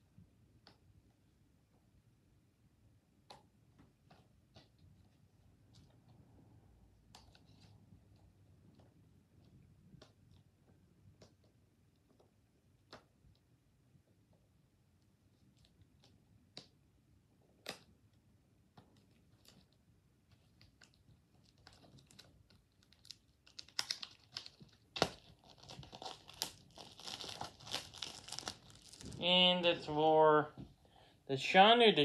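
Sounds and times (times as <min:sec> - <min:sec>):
packaging tearing and crinkling: 0:20.7 - 0:29.3.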